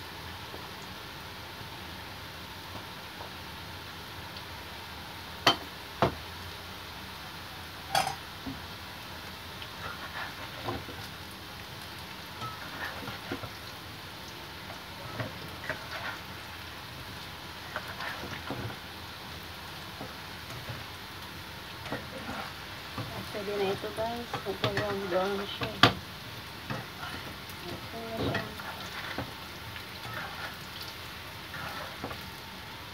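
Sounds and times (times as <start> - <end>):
fries sizzling in oil: 0.0 - 32.9
ladle scraping wok: 9.8 - 11.0, 12.4 - 13.5, 14.9 - 16.5, 17.6 - 18.8, 21.8 - 25.9, 26.7 - 32.3.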